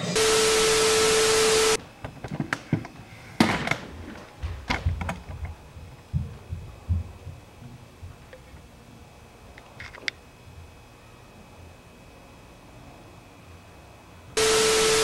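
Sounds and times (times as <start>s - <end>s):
steady test tone: 0.0s - 1.8s, 14.4s - 15.0s
tv static hiss: 0.0s - 1.8s, 14.4s - 15.0s.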